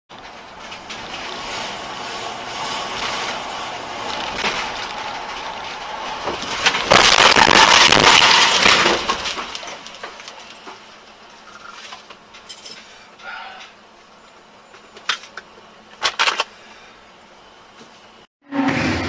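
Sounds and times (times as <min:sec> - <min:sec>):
road noise inside car: 0:00.1 - 0:19.0
car crash: 0:00.2 - 0:12.1, 0:18.5 - 0:19.0.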